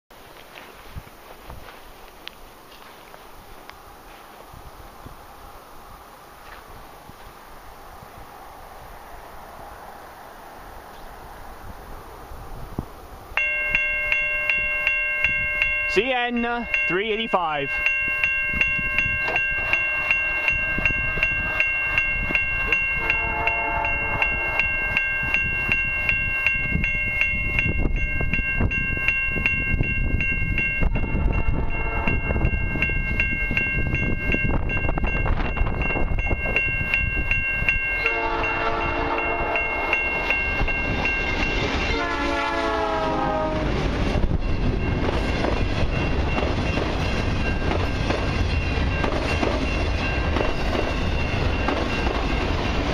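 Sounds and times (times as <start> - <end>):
freight train rumble: 0.1 - 52.9
crossing bell ringing: 13.3 - 52.9
locomotive horn blasts: 19.8 - 21.8, 23.0 - 24.7, 31.2 - 32.4, 38.0 - 40.0, 41.9 - 43.8.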